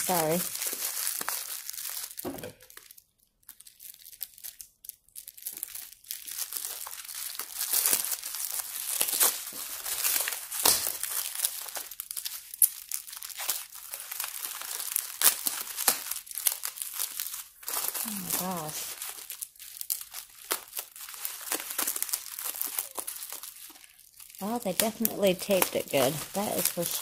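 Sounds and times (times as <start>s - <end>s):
bubble wrap crinkling: 0.0s - 27.0s.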